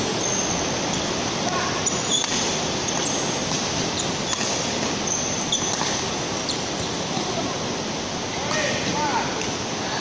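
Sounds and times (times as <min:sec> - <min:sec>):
shoes squeaking on court floor: 0:00.2 - 0:01.1, 0:01.7 - 0:07.0
racket hitting shuttlecock: 0:04.3 - 0:04.9, 0:05.6 - 0:06.0.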